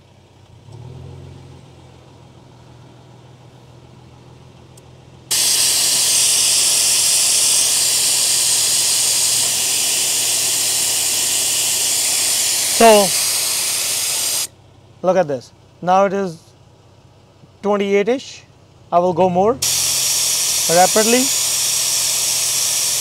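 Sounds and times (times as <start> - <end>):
air hissing out of tyre: 5.3 - 14.5, 19.6 - 23.0.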